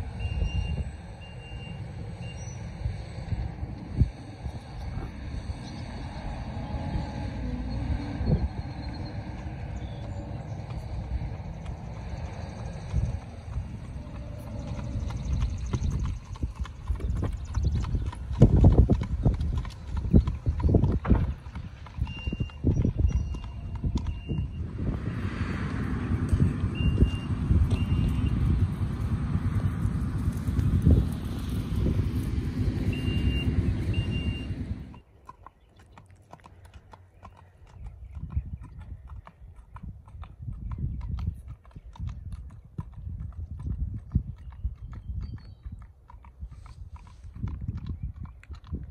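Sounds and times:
low rumble: 0:00.0 - 0:35.0
horse hooves clip-clopping on pavement: 0:00.0 - 0:48.9.

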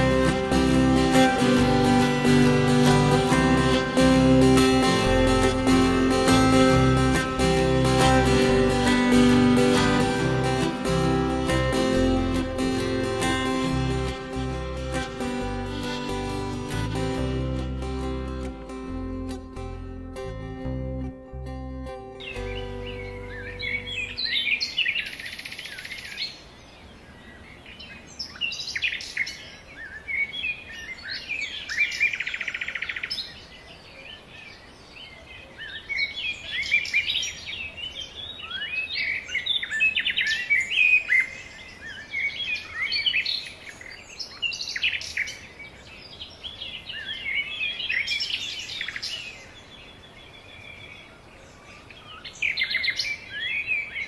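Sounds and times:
birds chirping and singing: 0:21.4 - 0:54.0.

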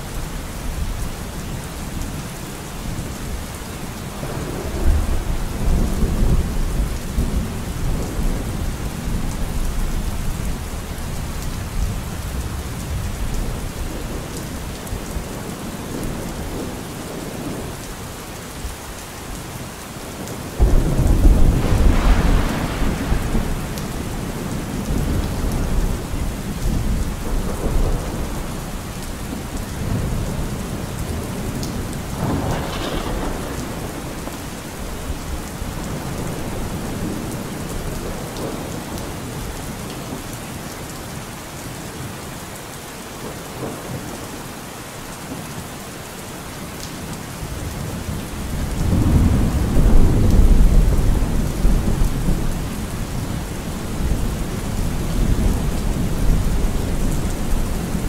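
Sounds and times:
steady rain: 0:00.0 - 0:58.0
thunder rumbling: 0:20.6 - 0:39.0, 0:47.7 - 0:58.0.

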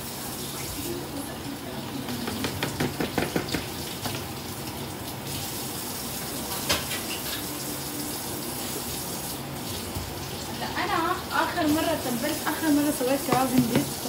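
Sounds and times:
steady rushing kitchen noise: 0:00.0 - 0:14.0
meat tapped into glass bowl: 0:02.3 - 0:03.7.

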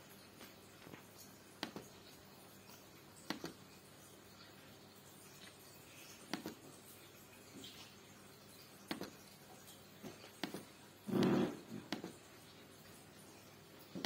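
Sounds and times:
touchpad clicks: 0:03.3 - 0:03.6.

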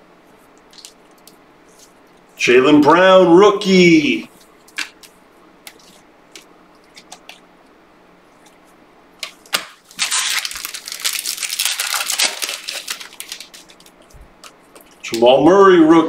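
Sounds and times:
foil wrapper tearing and crinkling: 0:09.5 - 0:15.0.

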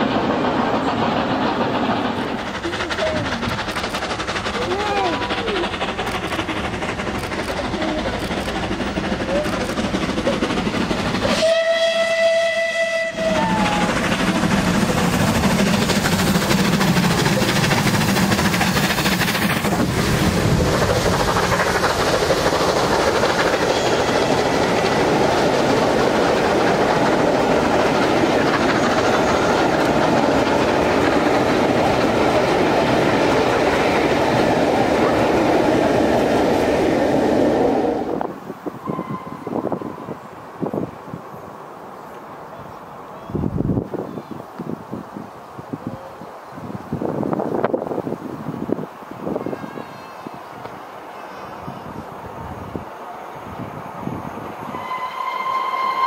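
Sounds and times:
steam locomotive exhaust: 0:00.0 - 0:41.2, 0:45.6 - 0:56.0
train carriages running past: 0:00.0 - 0:56.0
steam locomotive whistle: 0:11.2 - 0:14.2, 0:38.8 - 0:40.2, 0:54.6 - 0:56.0.

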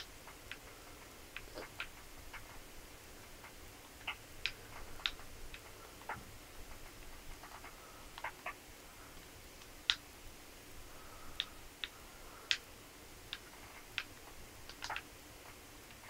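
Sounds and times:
faint sharp clicks: 0:11.3 - 0:12.7, 0:13.3 - 0:16.0.

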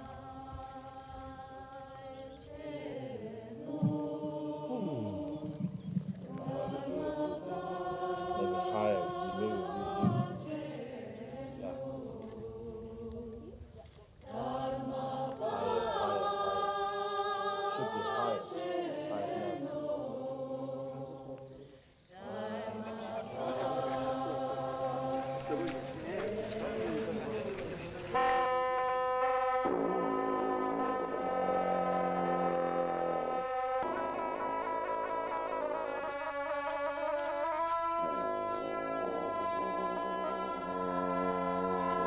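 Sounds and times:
group of voices chanting: 0:22.2 - 0:27.7.

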